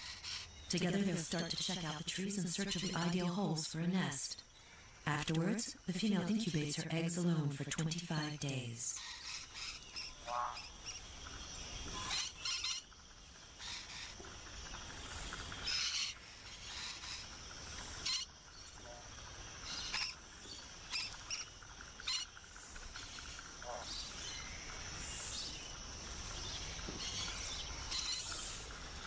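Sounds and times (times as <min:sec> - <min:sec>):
high insect hum: 0:00.0 - 0:29.0
high-pitched parrot calls: 0:12.0 - 0:12.9.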